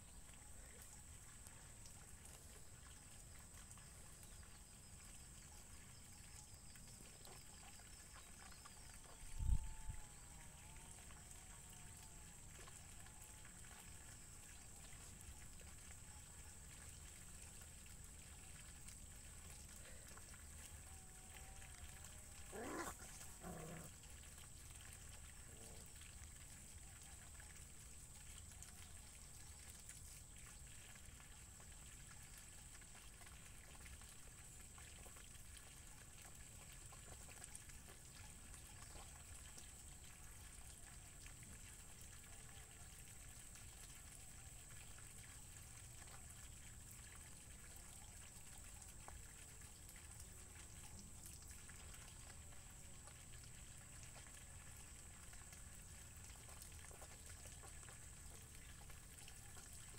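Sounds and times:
faint steady hiss: 0.0s - 59.9s
puppy yelping: 22.5s - 23.9s.

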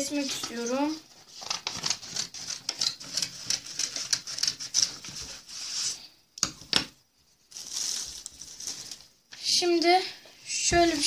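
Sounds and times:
paper rustling: 0.5s - 6.0s, 7.5s - 9.1s.

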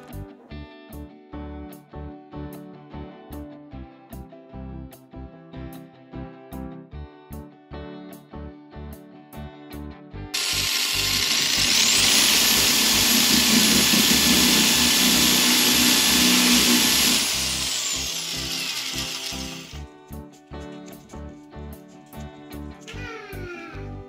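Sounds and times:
background music: 0.0s - 24.0s
electric drill boring: 10.4s - 19.9s.

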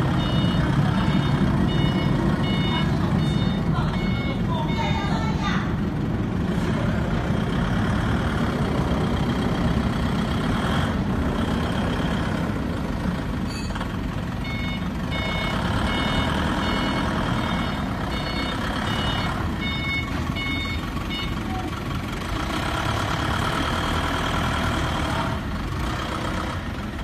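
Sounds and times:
forklift engine running: 0.0s - 27.0s
reversing alarm beeps: 0.1s - 5.1s, 14.4s - 21.5s.

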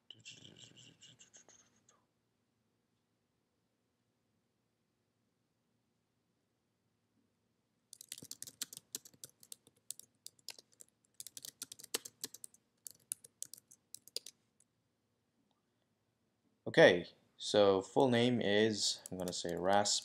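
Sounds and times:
typing on a computer keyboard: 7.9s - 14.4s, 18.9s - 20.0s.

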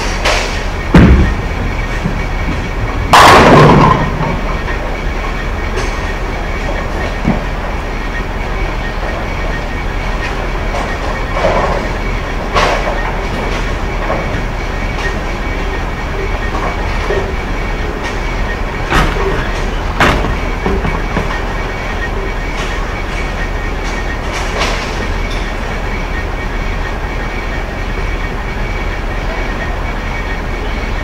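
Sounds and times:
low rumble of bowling alley: 0.0s - 31.0s
bowling ball hitting pins: 0.2s - 4.8s.

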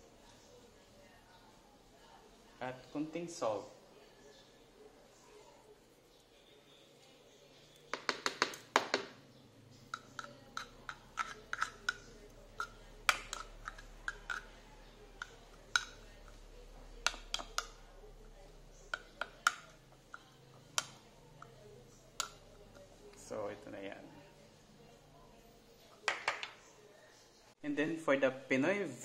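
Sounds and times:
spoon clicking on plastic bowl: 7.9s - 9.2s, 9.9s - 16.4s, 17.0s - 17.9s, 18.9s - 22.4s.

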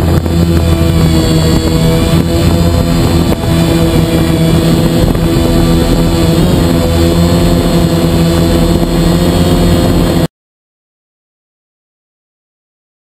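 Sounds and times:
drone propellers humming: 0.0s - 10.3s.

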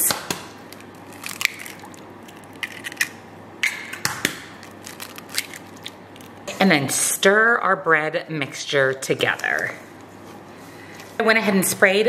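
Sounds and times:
eggs cracking: 0.2s - 6.5s.

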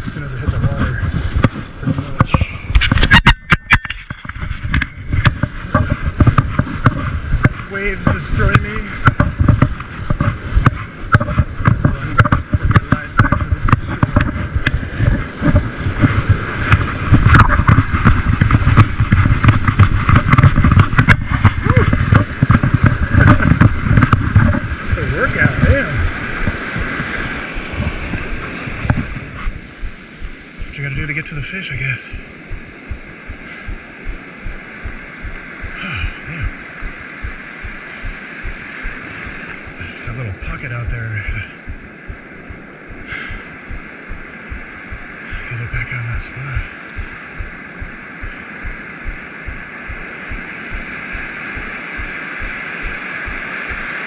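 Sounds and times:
heavy ocean surf breaking: 0.0s - 54.0s
wind rumble on microphone: 0.0s - 54.0s
sharp clicks and knocks: 1.4s - 24.7s.

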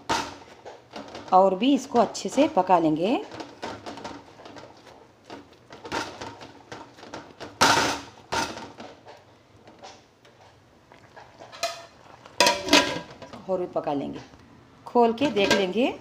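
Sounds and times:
metal spoon scraping a pot: 11.4s - 13.4s, 15.2s - 15.8s.

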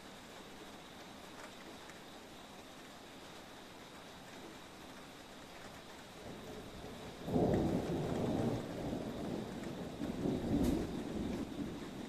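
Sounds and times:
rain hiss: 0.0s - 12.0s
thunder rumbling: 6.2s - 12.0s.

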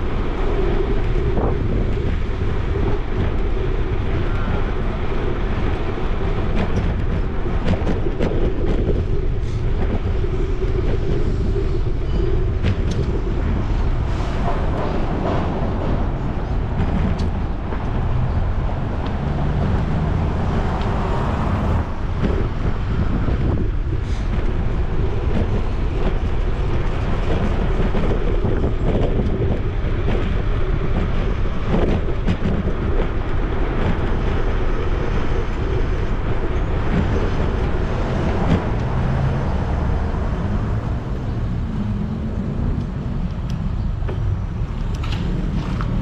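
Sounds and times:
wind noise: 0.0s - 46.0s
cars driving by: 13.6s - 25.8s, 36.6s - 46.0s.

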